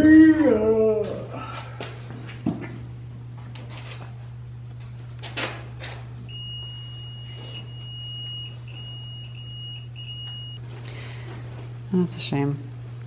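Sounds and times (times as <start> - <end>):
steady low hum: 0.0 - 13.0
multimeter continuity beep: 6.3 - 10.6.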